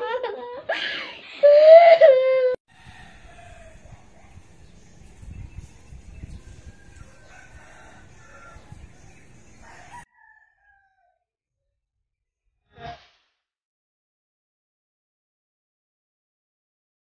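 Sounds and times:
rooster crowing: 2.7s - 4.0s, 6.6s - 8.8s, 9.6s - 11.2s.

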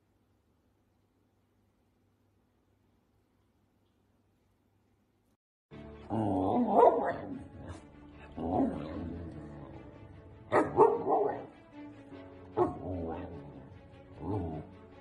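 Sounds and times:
background music: 5.7s - 15.0s.

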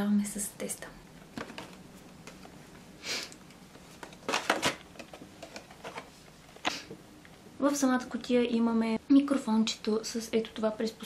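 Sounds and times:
cardboard box and plastic rustling: 1.3s - 2.5s, 3.7s - 6.3s.

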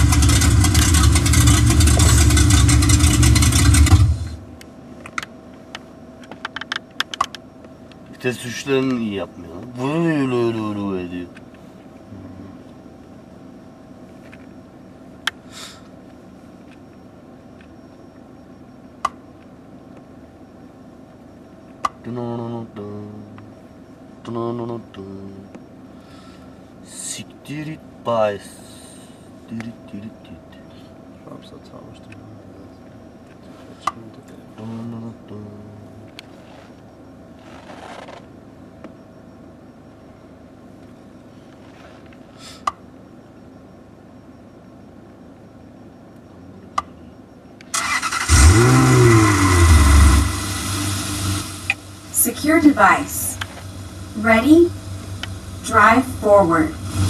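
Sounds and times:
car engine idling: 0.0s - 4.8s, 46.5s - 57.0s
low hum inside car: 0.0s - 57.0s
soft rustle: 36.1s - 38.3s, 40.8s - 42.4s.

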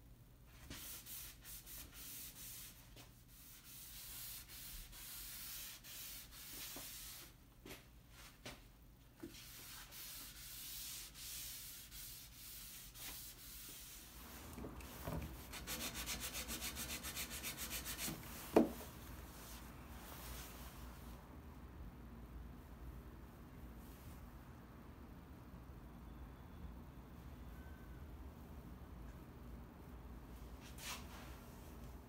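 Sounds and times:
cloth wiping wood: 0.7s - 7.4s, 9.2s - 21.2s
sanding block knock: 15.4s - 18.8s
sanding block scrubbing wood: 15.5s - 18.2s.

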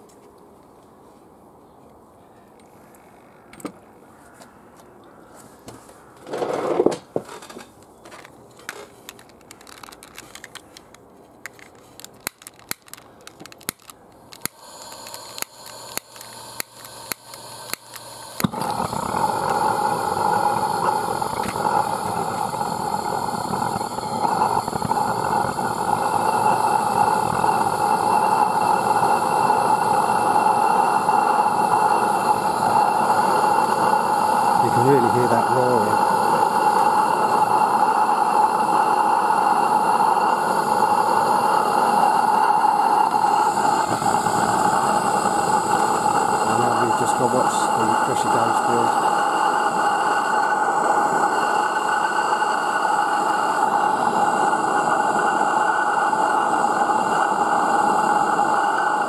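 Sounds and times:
gas burner roaring: 6.0s - 59.0s
lighter clicking: 9.2s - 29.0s.

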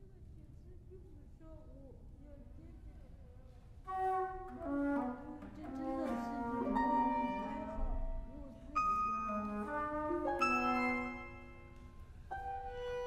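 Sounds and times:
flute violin and cello ensemble: 4.0s - 11.6s.

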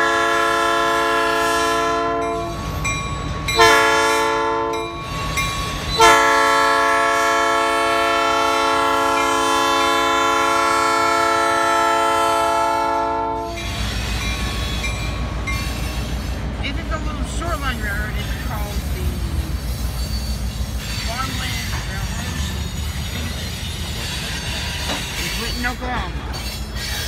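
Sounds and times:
locomotive air horn: 0.0s - 2.6s, 3.6s - 5.0s, 6.0s - 13.8s
train rumbling: 0.0s - 27.0s.

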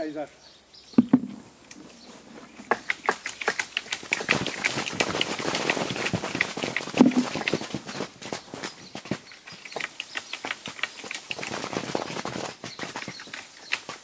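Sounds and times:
leaves rustling: 1.0s - 9.2s
fruit pattering on plastic sheeting: 1.0s - 14.0s.

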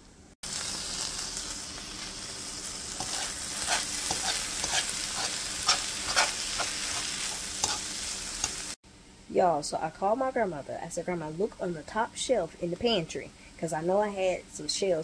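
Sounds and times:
meat sizzling in frying pan: 0.4s - 8.8s
metal fork scraping pan: 3.0s - 8.6s.

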